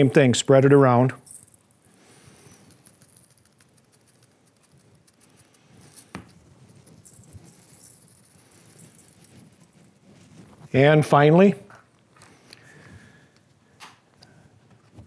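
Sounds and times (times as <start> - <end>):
seasoning sprinkled into a bowl: 1.2 - 11.3.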